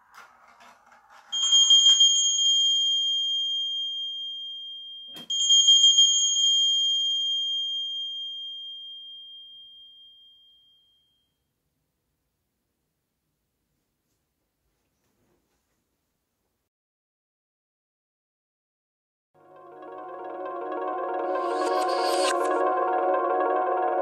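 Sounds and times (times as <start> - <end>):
bell-like chime tones: 1.3 - 11.4, 19.6 - 24.0.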